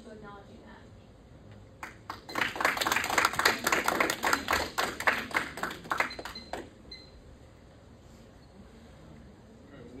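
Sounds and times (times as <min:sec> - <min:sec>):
audience applauding: 0:01.8 - 0:06.7.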